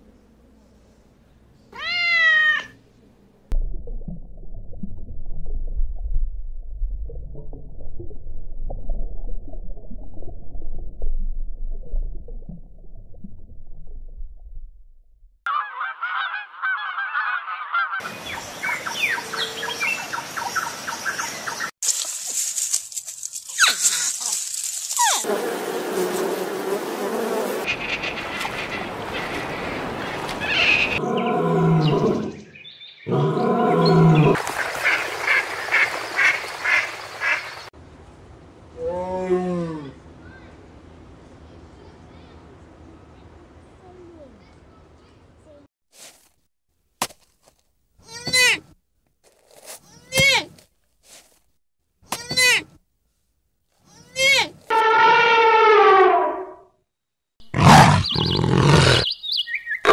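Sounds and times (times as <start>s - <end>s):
low rumble: 3.5s - 15.4s
ducks quacking: 34.4s - 37.6s.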